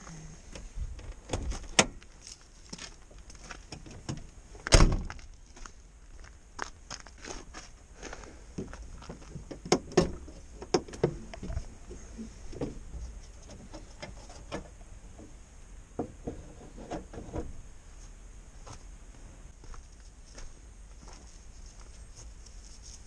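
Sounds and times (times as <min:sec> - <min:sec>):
van bonnet latch clicks and knocks: 0:09.4 - 0:11.5.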